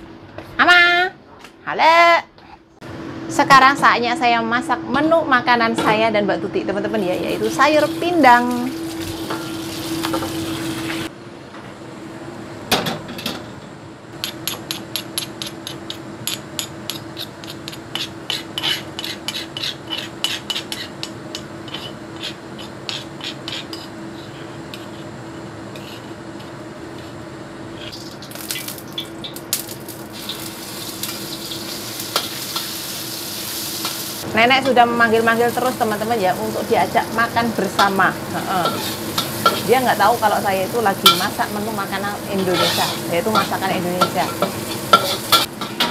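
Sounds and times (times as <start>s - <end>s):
steady hum: 1.1s - 45.9s
paste sizzling in hot oil: 7.2s - 11.1s, 27.9s - 34.3s, 35.2s - 45.6s
metal spoon scraping a stone mortar: 14.2s - 25.0s, 38.6s - 39.8s, 42.4s - 45.5s.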